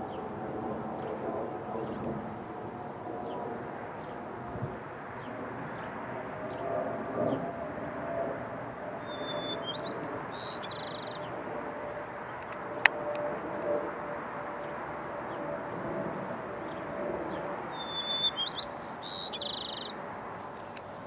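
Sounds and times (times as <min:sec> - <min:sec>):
sparrow singing: 0:09.0 - 0:11.3, 0:16.7 - 0:20.9.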